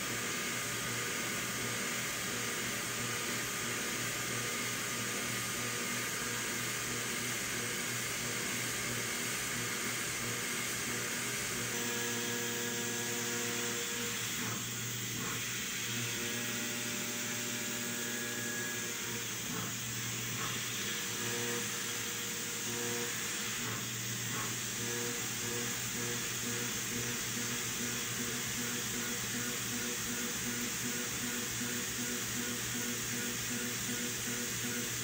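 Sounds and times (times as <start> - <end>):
milling machine cutting metal: 11.6 - 35.0.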